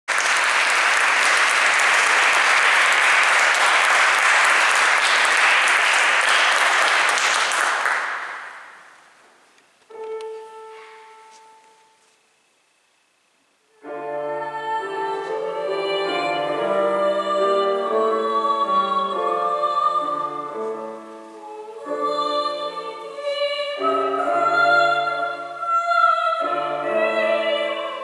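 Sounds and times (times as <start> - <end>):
audience applauding: 0.1 - 8.9.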